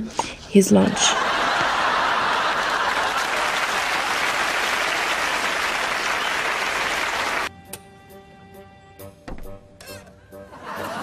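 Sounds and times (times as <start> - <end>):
audience applauding: 1.1 - 7.5
faint music with held notes: 7.5 - 11.0.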